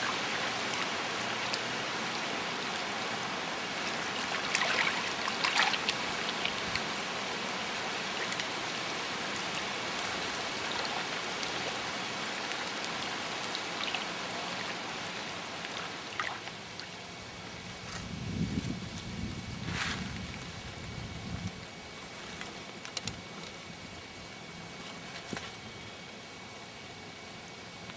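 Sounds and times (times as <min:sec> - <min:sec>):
water wash: 0:00.0 - 0:17.8
water splashing ticks: 0:00.1 - 0:01.7, 0:03.8 - 0:06.9, 0:08.1 - 0:08.6, 0:09.3 - 0:17.0.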